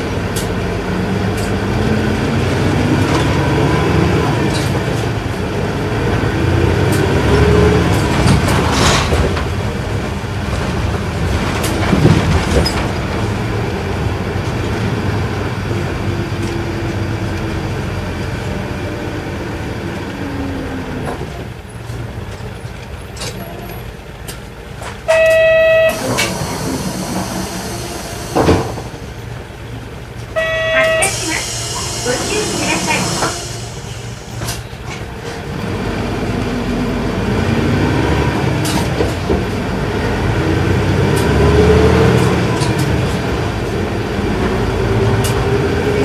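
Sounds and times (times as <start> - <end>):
bus diesel engine from inside: 0.0 - 46.0
loud electronic tone: 25.1 - 26.3, 30.4 - 31.5.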